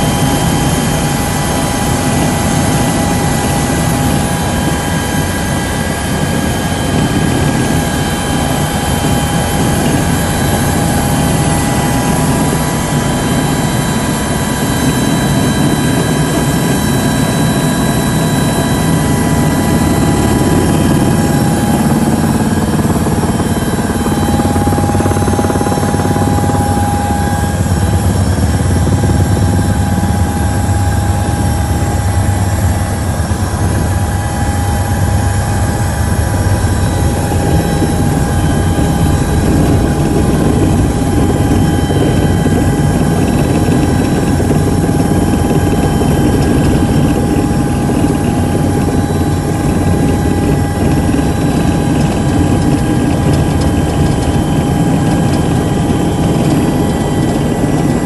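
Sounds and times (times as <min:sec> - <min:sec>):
helicopter engine and rotor drone: 0:00.0 - 0:58.0
high whine: 0:00.0 - 0:58.0.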